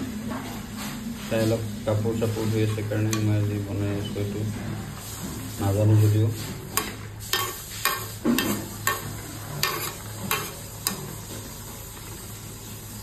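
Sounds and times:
low sizzle: 0.0 - 13.0
ladle clinking and scraping pan: 6.4 - 11.5.

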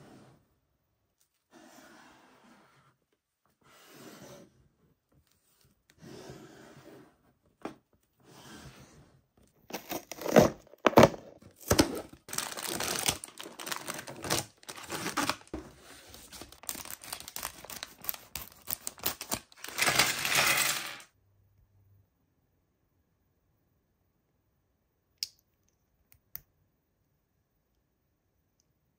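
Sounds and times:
toy packaging tearing and crinkling: 9.7 - 21.0.

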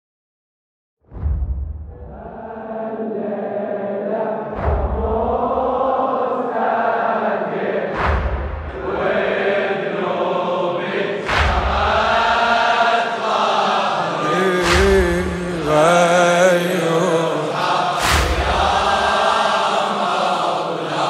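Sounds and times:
deep booms: 1.0 - 2.4, 4.5 - 5.7, 14.6 - 15.8
men chanting: 2.1 - 21.0.

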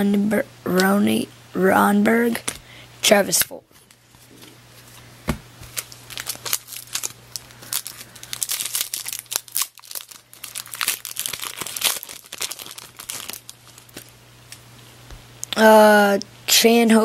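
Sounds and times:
foil wrapper crinkling: 5.6 - 14.6.

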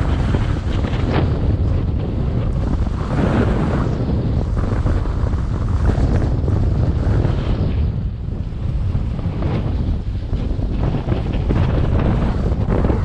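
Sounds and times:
snowboard scraping on snow: 0.0 - 13.0
wind buffeting microphone: 0.0 - 13.0.

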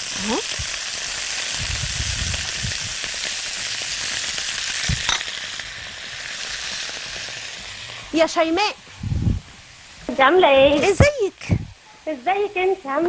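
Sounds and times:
sausage sizzling in a frying pan: 0.0 - 13.0.

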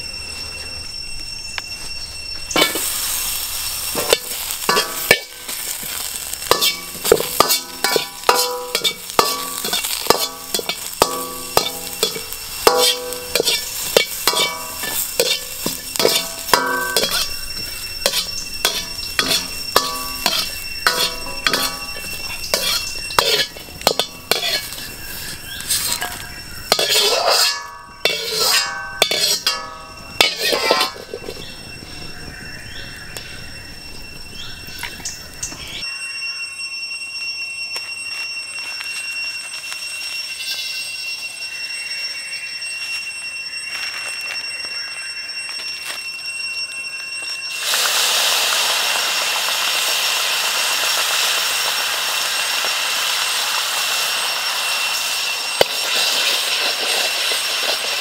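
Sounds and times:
sizzling pan: 2.4 - 35.8, 47.5 - 58.0
ladle clanging against wok: 4.0 - 24.8, 25.8 - 31.4.

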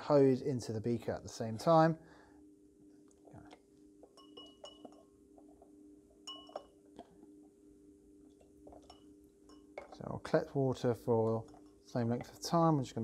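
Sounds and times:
faint hum: 0.0 - 13.0
hose tip clinking on glass: 4.1 - 5.1, 6.3 - 6.7.

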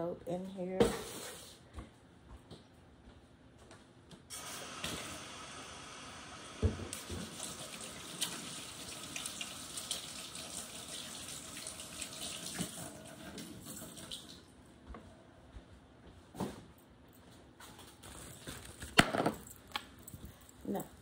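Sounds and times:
tap water running into sink: 6.4 - 14.4.

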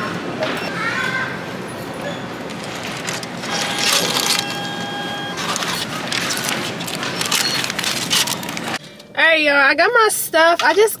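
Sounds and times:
busy store noise: 0.0 - 11.0
receipt printer whine: 2.2 - 8.8.

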